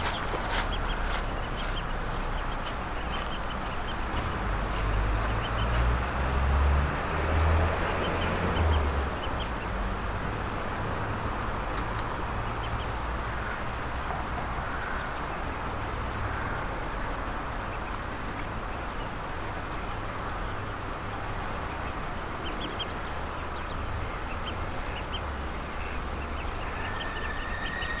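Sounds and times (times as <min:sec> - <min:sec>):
ducks calling: 0:00.0 - 0:06.5, 0:17.6 - 0:28.0
ducklings peeping: 0:00.0 - 0:09.8, 0:11.7 - 0:13.6, 0:17.0 - 0:28.0.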